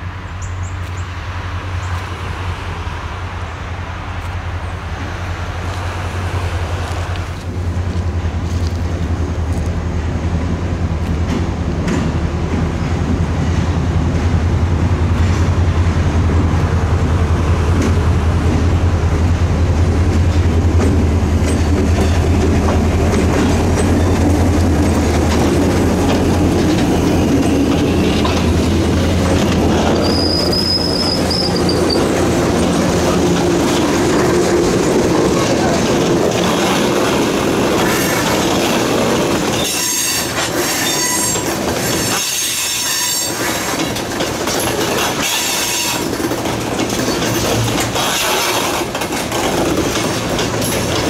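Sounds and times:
diesel locomotive engines humming: 0:00.0 - 0:51.0
high wheel squeal: 0:29.5 - 0:32.3, 0:39.5 - 0:43.7, 0:45.1 - 0:46.2.

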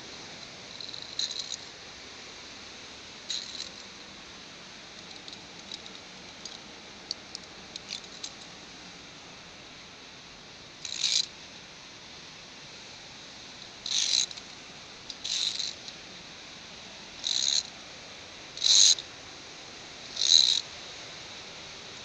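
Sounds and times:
faint steady hiss: 0:00.0 - 0:22.0
carabiner scraping along wire cable: 0:00.7 - 0:01.7, 0:03.3 - 0:03.9, 0:07.8 - 0:08.5, 0:10.8 - 0:11.3, 0:13.8 - 0:14.4, 0:15.1 - 0:15.8, 0:17.2 - 0:17.7, 0:18.6 - 0:19.0, 0:20.2 - 0:20.6.

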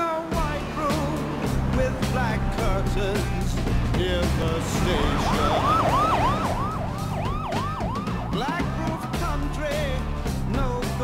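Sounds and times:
music: 0:00.0 - 0:11.0
police siren yelping: 0:04.6 - 0:09.4.

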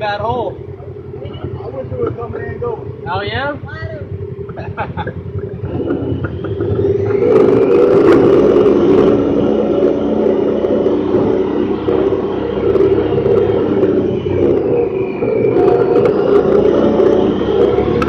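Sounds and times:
vehicle engine running: 0:00.0 - 0:18.0.

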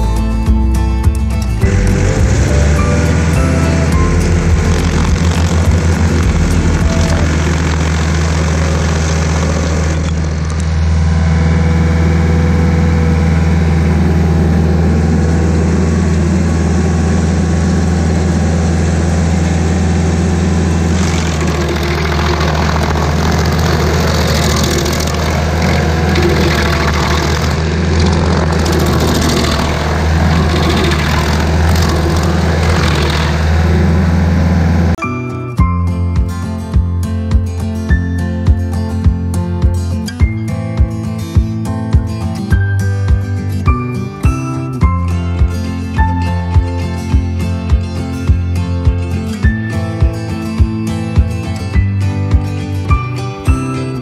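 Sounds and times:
rough noisy grinding: 0:01.2 - 0:35.0
stump grinder engine running: 0:01.2 - 0:35.0.

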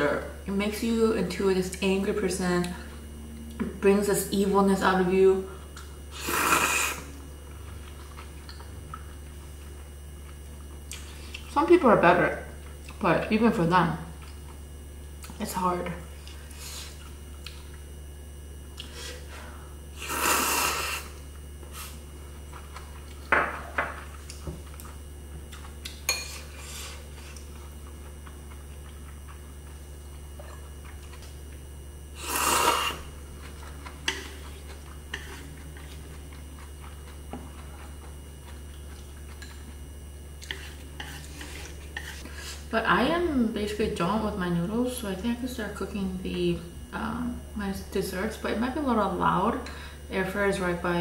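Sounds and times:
steady low hum: 0:00.0 - 0:51.0
noodle slurping: 0:06.1 - 0:07.1, 0:20.0 - 0:21.2, 0:32.2 - 0:33.1.

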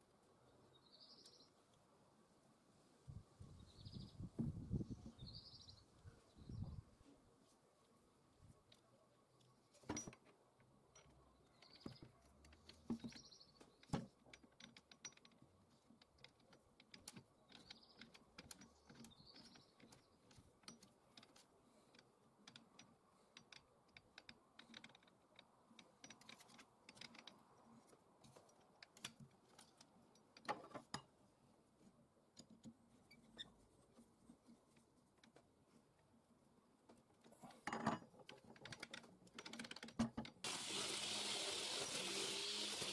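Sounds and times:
small metal parts clicking: 0:10.9 - 0:27.5.

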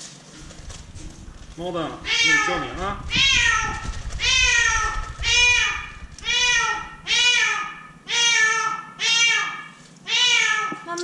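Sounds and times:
cat meowing: 0:02.0 - 0:10.8.

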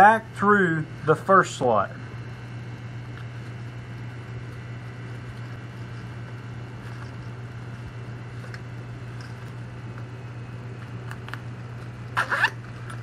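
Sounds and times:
steady low hum: 0:00.0 - 0:13.0
webbing rustling through buckle: 0:04.4 - 0:09.6.

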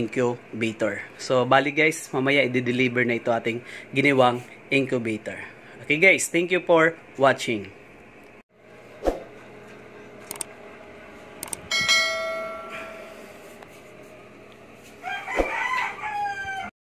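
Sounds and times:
cursor clicks: 0:10.2 - 0:10.5, 0:11.4 - 0:11.7
bell chime: 0:11.7 - 0:13.2
rooster crowing: 0:15.0 - 0:16.7.

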